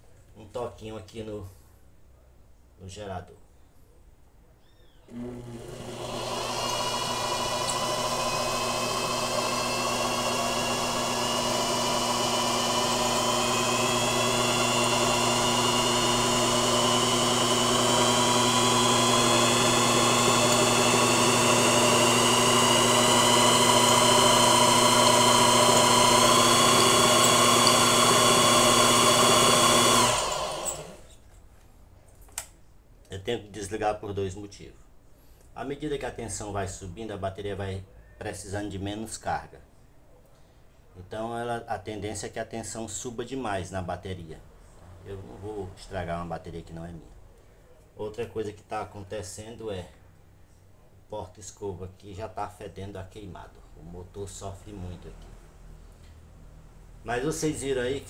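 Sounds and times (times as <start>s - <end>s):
electric motor hum and whine: 5.1s - 31.1s.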